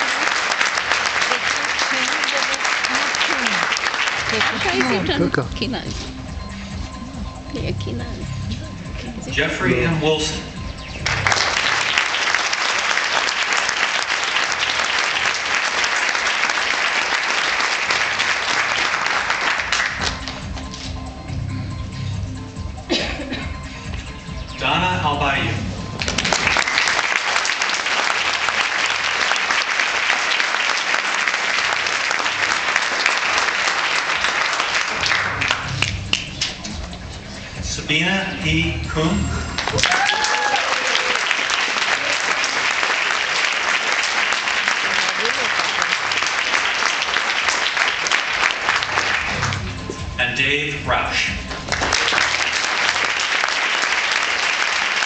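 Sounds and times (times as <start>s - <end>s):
audience applauding: 0.0s - 5.6s, 10.9s - 20.9s, 25.9s - 36.6s, 39.4s - 50.1s, 51.2s - 55.0s.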